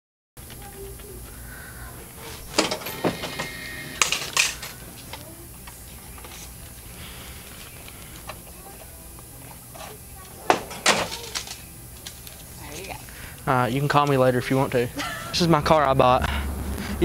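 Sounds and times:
low steady hum: 0.4s - 17.0s
items clicking and knocking: 2.5s - 5.2s, 9.8s - 12.5s.

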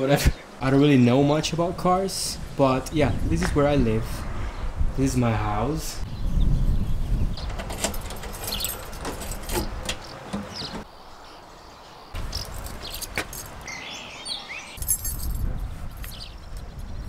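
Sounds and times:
birds chirping: 0.0s - 17.0s
wind buffeting microphone: 1.2s - 10.9s, 12.2s - 17.0s
keys jingling: 7.4s - 10.8s, 12.2s - 13.7s, 14.8s - 16.3s.

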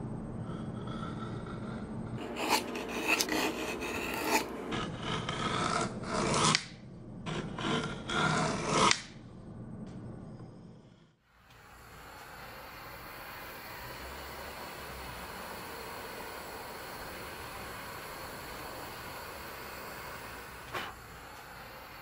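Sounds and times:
chisel rasping through wood: 2.2s - 6.7s, 7.3s - 9.1s.

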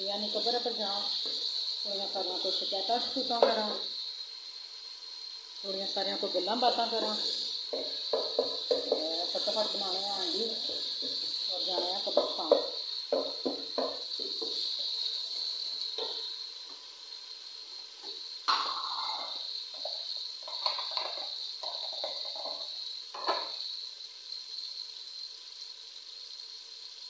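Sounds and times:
tomatoes sizzling in oil: 0.0s - 27.0s
utensils knocking against pot: 3.3s - 3.8s, 6.9s - 14.7s, 16.0s - 16.2s, 18.5s - 23.6s.

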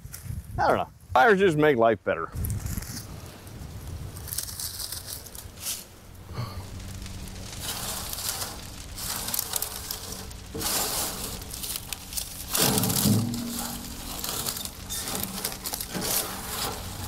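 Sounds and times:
dry stems rustling and crunching: 2.4s - 17.0s.

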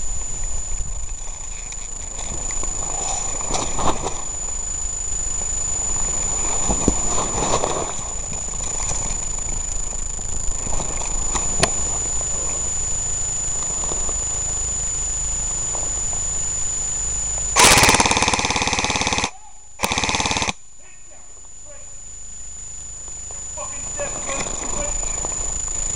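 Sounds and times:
wind rustle: 0.0s - 16.5s
faint high whine: 0.0s - 25.9s
airsoft gun full-auto fire: 17.6s - 20.6s.

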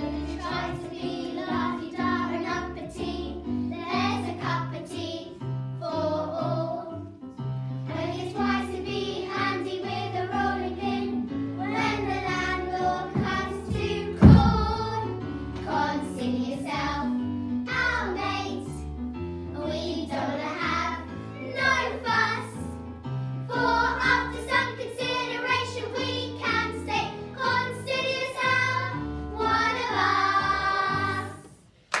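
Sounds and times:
girls singing together: 0.0s - 7.0s, 7.9s - 16.9s, 23.5s - 31.6s
loud thump: 13.2s - 15.0s.

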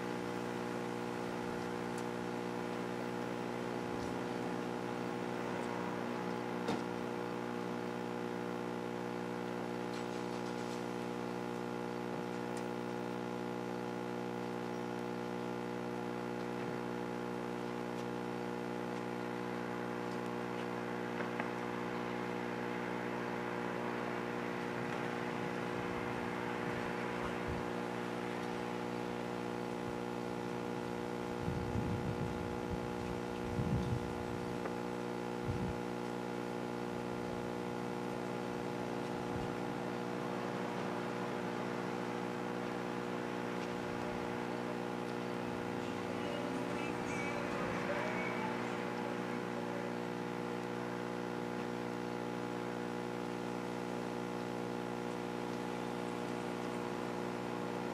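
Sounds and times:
steady electrical hum: 0.0s - 57.9s.

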